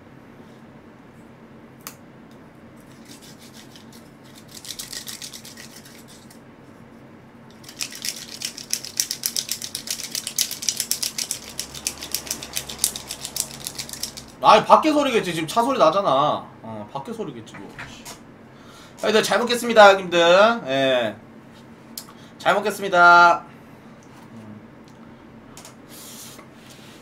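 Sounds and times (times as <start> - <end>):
wooden chopsticks rasping: 2.9 - 6.4, 7.6 - 14.4.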